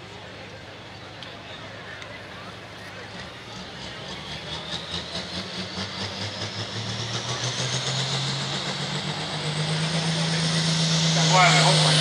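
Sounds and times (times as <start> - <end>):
diesel engine revving: 3.2 - 12.0
high turbo whine: 3.2 - 12.0.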